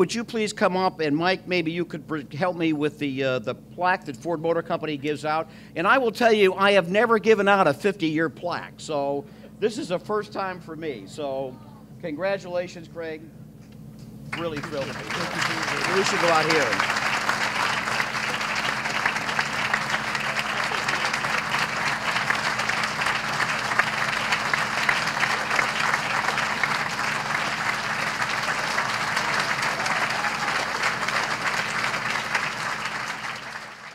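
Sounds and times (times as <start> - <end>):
audience applauding: 14.3 - 33.9.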